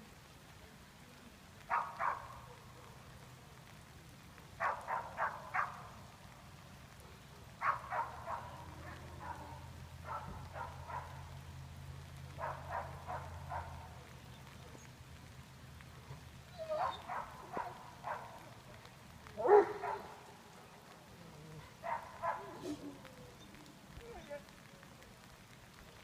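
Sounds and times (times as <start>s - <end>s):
distant dog barking: 1.7s - 3.1s, 4.6s - 6.0s, 7.0s - 11.4s, 12.3s - 14.6s, 16.0s - 24.5s.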